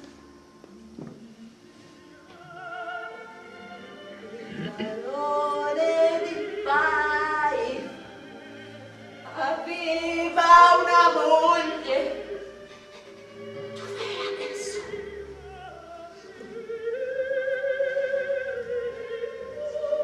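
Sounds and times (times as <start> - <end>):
woman singing operatically: 2.2 - 3.5, 4.2 - 8.0, 9.3 - 12.4, 14.1 - 20.0.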